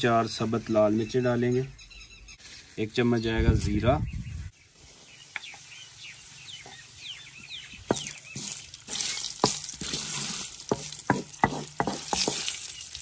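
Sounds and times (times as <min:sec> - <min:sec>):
cumin crackling: 0:00.5 - 0:03.8, 0:04.4 - 0:13.0
spices sizzling in hot oil: 0:04.5 - 0:13.0.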